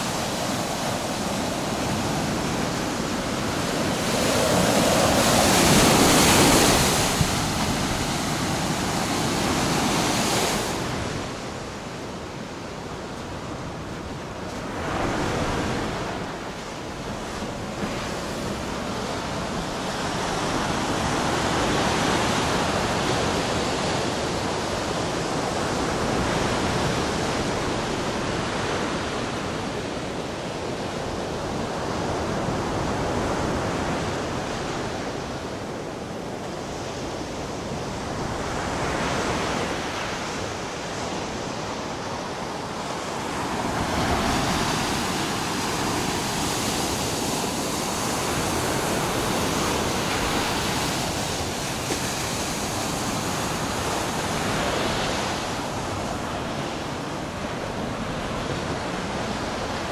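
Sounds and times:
surf breaking on sandy beach: 0.0 - 22.9, 36.6 - 59.9.

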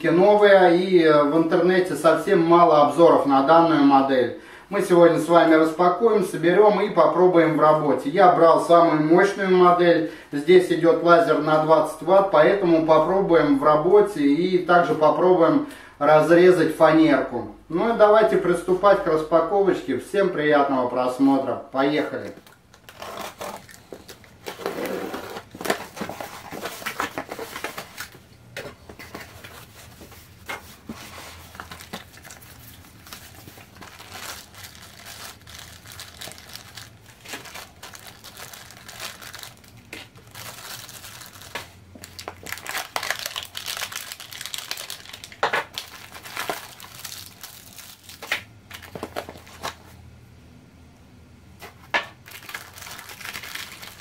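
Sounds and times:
plastic bags crinkling: 22.2 - 28.2, 28.8 - 49.8, 52.2 - 54.0
packing tape tearing: 22.5 - 28.1, 33.0 - 49.8.

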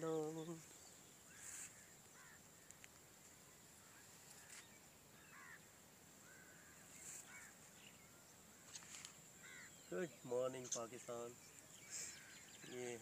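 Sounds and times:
bird chirps: 3.8 - 13.0.

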